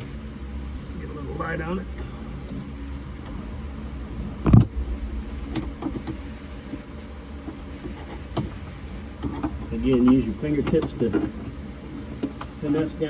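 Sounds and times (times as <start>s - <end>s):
steady low rumble: 0.0s - 13.0s
loud thump: 4.4s - 6.4s.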